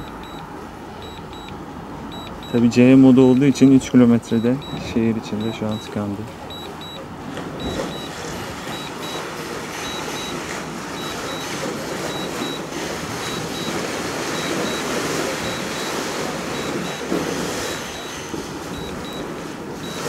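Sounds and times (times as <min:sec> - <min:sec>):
short high beeps: 0:00.0 - 0:10.4, 0:11.0 - 0:20.0
rushing background noise: 0:00.0 - 0:20.0.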